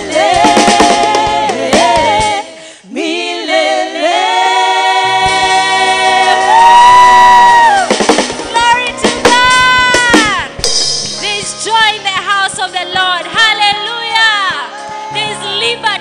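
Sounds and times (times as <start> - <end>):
group singing into microphones: 0.0 - 7.9
low musical accompaniment: 7.8 - 16.0.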